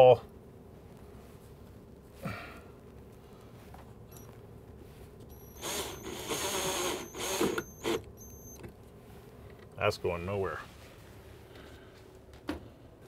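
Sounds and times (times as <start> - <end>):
cordless drill driving a screw: 5.3 - 8.6.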